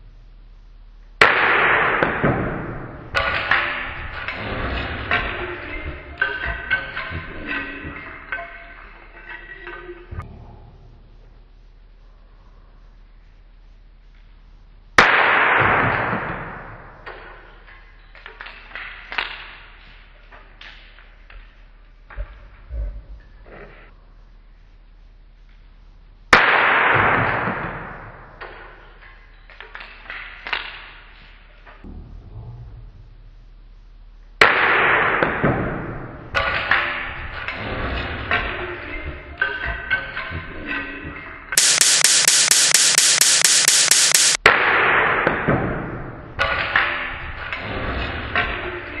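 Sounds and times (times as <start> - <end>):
hiss of fragments spraying: 41.6 - 44.4.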